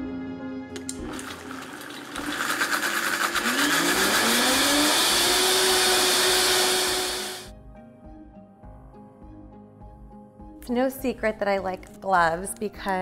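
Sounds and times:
blender motor whining: 0.9 - 7.5.

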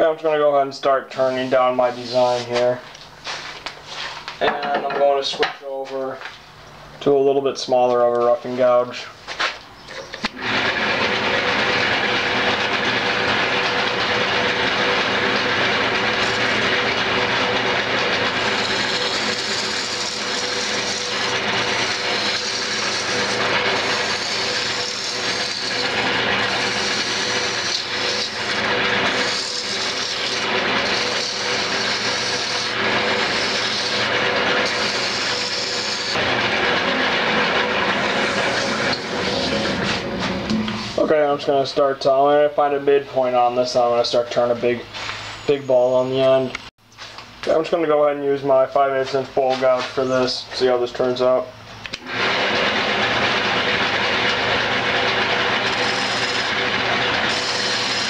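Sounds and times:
lathe humming: 10.2 - 41.1, 52.0 - 58.0
gouge shaving wood on lathe: 10.4 - 40.3, 52.1 - 58.0.

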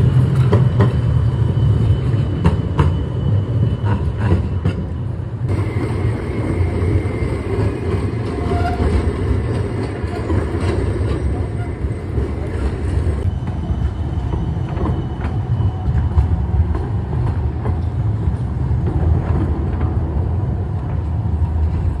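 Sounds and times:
tram rumbling: 0.0 - 22.0
faint high squeal: 0.6 - 4.1, 13.2 - 16.4.

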